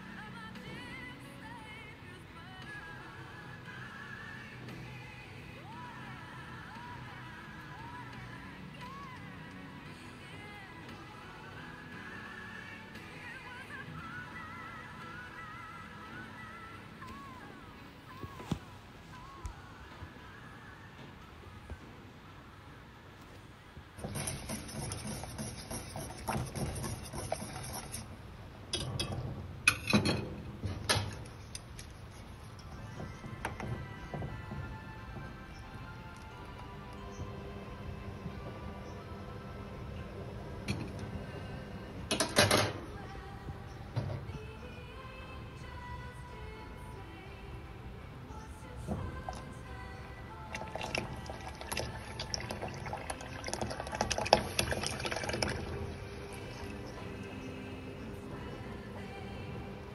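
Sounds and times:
bubbles popping: 50.5 - 55.7
liquid pouring and splashing: 50.5 - 57.0.

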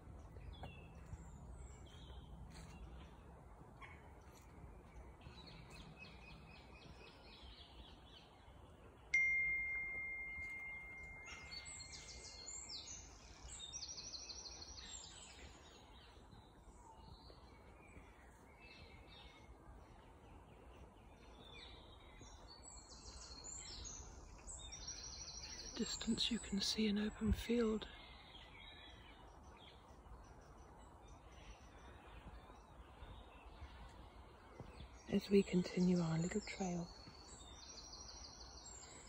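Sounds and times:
woodland birds singing: 0.0 - 39.0
bell-like ring: 9.2 - 11.8.

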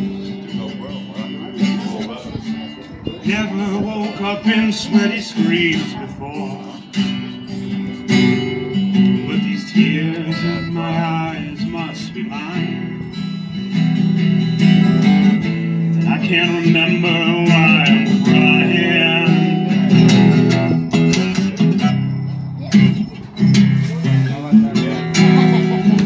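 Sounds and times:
man singing: 0.0 - 13.2, 15.8 - 21.8
acoustic guitar: 0.0 - 26.0.

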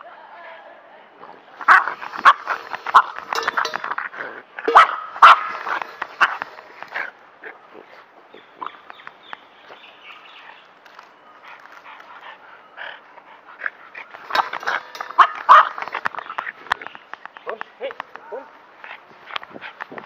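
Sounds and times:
dogs barking: 1.6 - 3.8, 4.6 - 7.6, 13.4 - 16.1.

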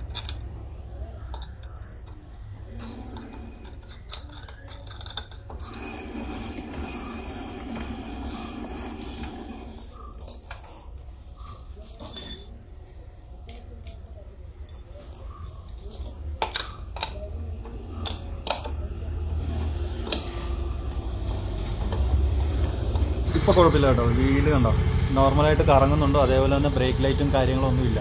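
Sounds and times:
metal tools clinking: 0.0 - 0.5, 3.2 - 5.8, 11.9 - 12.6, 14.6 - 17.2.

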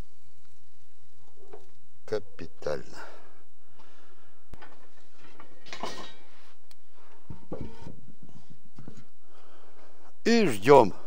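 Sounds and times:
steady low hum: 0.0 - 11.0
cookware clattering and scraping: 4.6 - 6.3.

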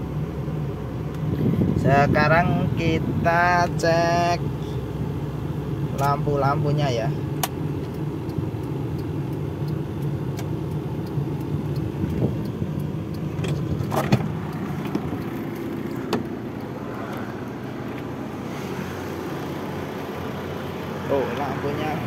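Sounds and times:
car engine idling: 0.0 - 22.0
sharp clicks and knocks: 10.0 - 17.2.

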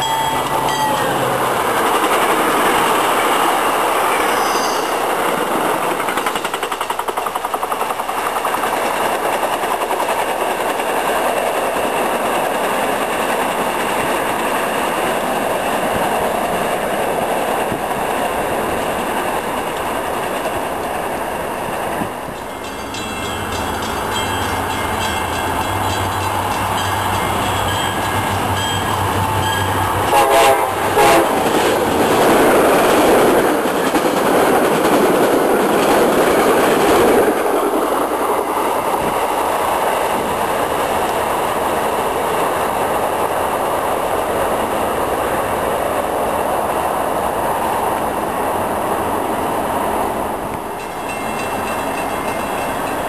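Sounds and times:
train rumbling past: 0.0 - 53.0
train horn blasts: 30.0 - 31.4.

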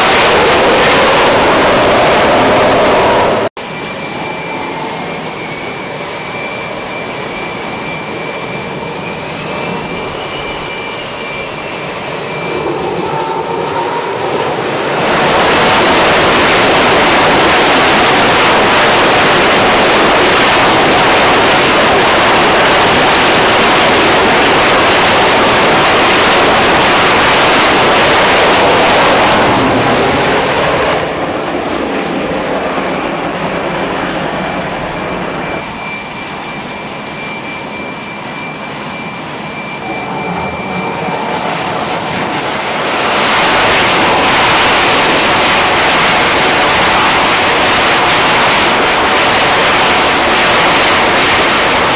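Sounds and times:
jet engine full-power roar: 0.0 - 51.9
jet engines whining: 0.0 - 51.9
other jets whining: 0.0 - 51.9.

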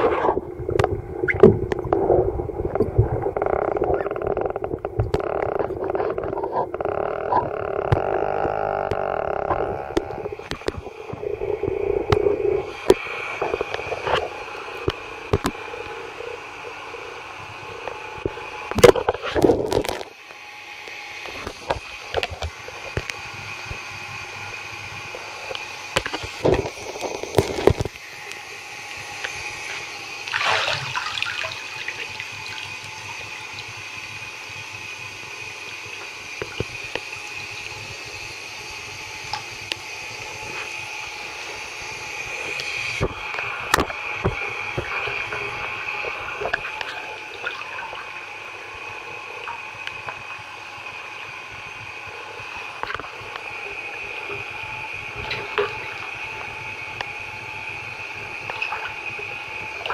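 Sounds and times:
feet splashing in water: 30.3 - 31.9.

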